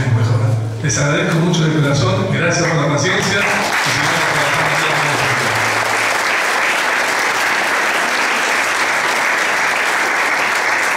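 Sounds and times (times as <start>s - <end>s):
audience applauding: 3.2s - 10.9s.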